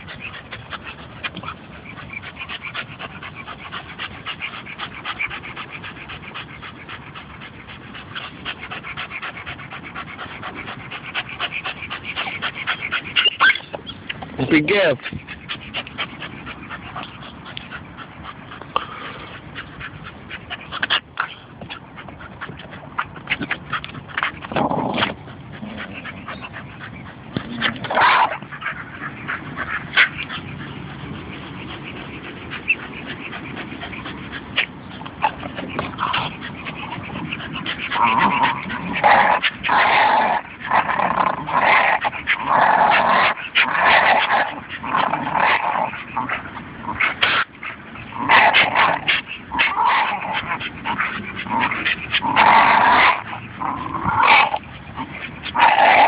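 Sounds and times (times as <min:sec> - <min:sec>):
dogs vocalising: 0:00.0 - 0:56.0
high-pitched dog calls: 0:09.9 - 0:18.6.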